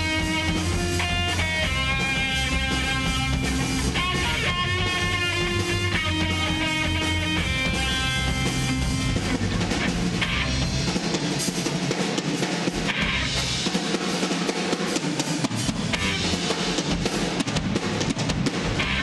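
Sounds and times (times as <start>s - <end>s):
deep bass: 0.0s - 11.0s, 15.7s - 16.4s
electric guitars: 0.0s - 14.3s, 15.4s - 19.0s
drum kit beat: 0.0s - 19.0s.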